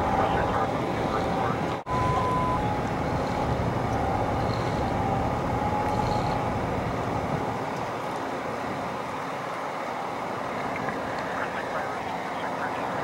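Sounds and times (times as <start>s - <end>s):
highway traffic rushing: 0.0s - 13.0s
low traffic rumble: 0.0s - 13.0s.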